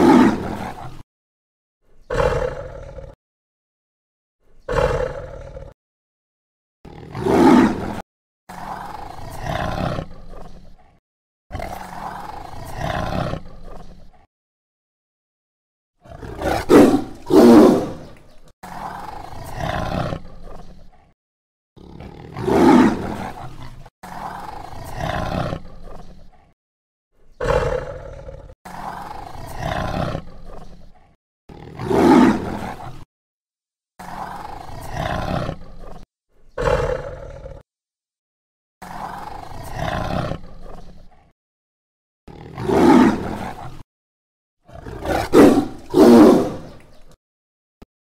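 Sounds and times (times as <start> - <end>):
tiger growling: 0.0 - 1.0, 2.1 - 3.2, 4.6 - 5.8, 6.9 - 14.3, 16.0 - 21.2, 21.8 - 26.6, 27.3 - 33.1, 34.0 - 36.0, 36.6 - 37.6, 38.8 - 41.3, 42.3 - 43.8, 44.7 - 47.1
tiger roaring: 0.0 - 1.0, 2.1 - 3.2, 4.7 - 5.8, 6.9 - 14.3, 16.0 - 21.1, 21.8 - 26.6, 27.4 - 33.1, 34.0 - 36.0, 36.6 - 37.6, 38.8 - 41.3, 42.3 - 43.8, 44.7 - 47.0.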